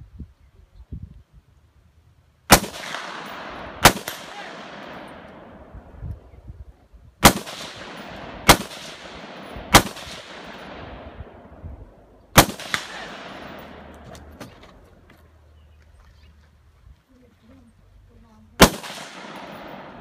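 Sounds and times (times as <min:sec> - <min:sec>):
gunshots with echo: 0:02.5 - 0:05.7, 0:07.2 - 0:11.5, 0:12.4 - 0:14.0, 0:18.6 - 0:20.0.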